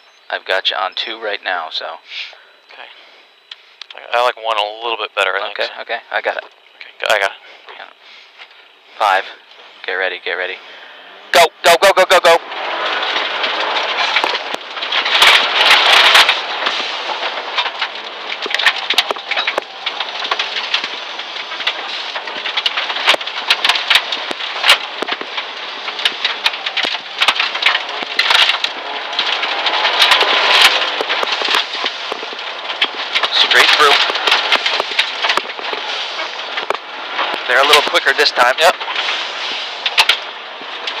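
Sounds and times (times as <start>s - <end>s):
gravel pelting car underside: 0.0s - 41.0s
car engine running hard: 8.6s - 41.0s.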